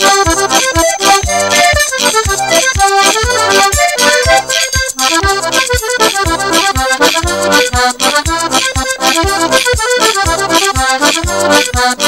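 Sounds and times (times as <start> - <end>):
steady low beat: 0.0 - 11.8
accordion playing chords: 0.0 - 12.0.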